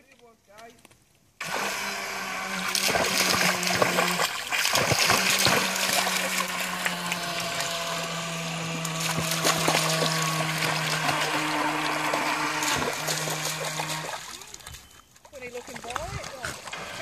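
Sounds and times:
dog splashing in water: 1.4 - 7.9, 8.7 - 17.0
electric motor whining: 1.4 - 14.3.

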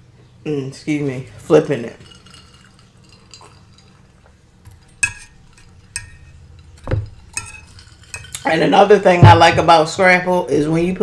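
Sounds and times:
quiet eating sounds: 1.2 - 8.6
low thump: 9.2 - 9.7.

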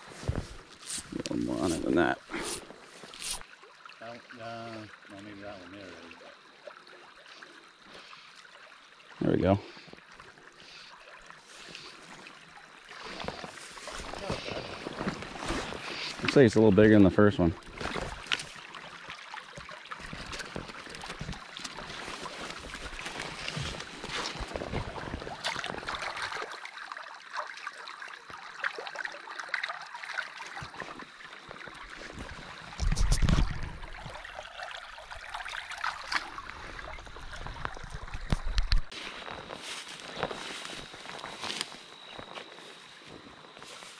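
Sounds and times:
brook babbling over stones: 0.6 - 39.0
small clicks and rustles: 17.8 - 26.0.

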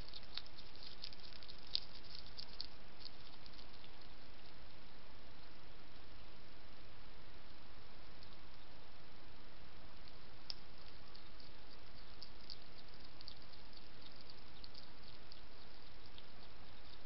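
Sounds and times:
hedgehog crunching biscuits: 0.0 - 4.8, 10.1 - 17.0
steady hiss: 0.0 - 17.0.

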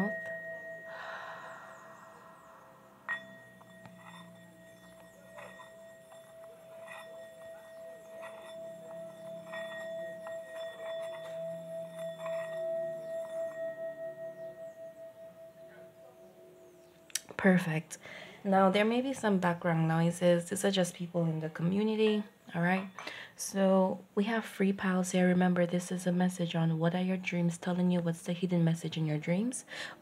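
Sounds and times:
singing bowl struck with mallet: 0.0 - 17.1
singing bowl ringing tone: 0.0 - 17.8.

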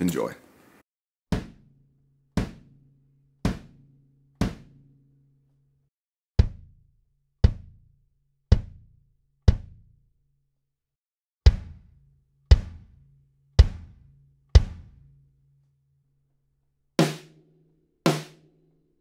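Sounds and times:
snare drum hits: 4.4 - 4.7.

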